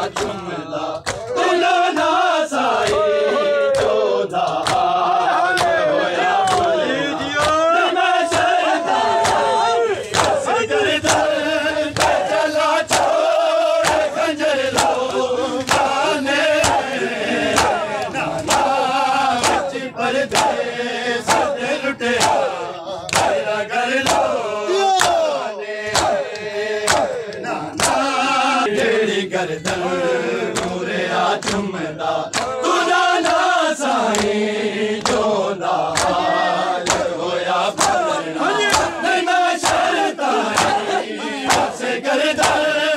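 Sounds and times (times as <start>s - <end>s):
men chanting a lament: 0.0s - 42.9s
hands slapping chests: 0.1s - 0.4s, 1.0s - 1.4s, 2.8s - 3.1s, 3.7s - 5.8s, 6.4s - 10.5s, 11.1s - 11.3s, 11.9s - 13.2s, 13.8s - 16.0s, 16.6s - 16.9s, 17.5s - 18.8s, 19.4s - 20.6s, 21.2s - 21.6s, 22.2s - 28.1s, 30.5s - 30.8s, 31.4s - 31.7s, 32.3s - 32.6s, 33.2s - 33.5s, 34.1s - 34.4s, 35.0s - 35.2s, 35.9s - 36.2s, 36.8s - 39.0s, 39.6s - 41.8s, 42.4s - 42.7s.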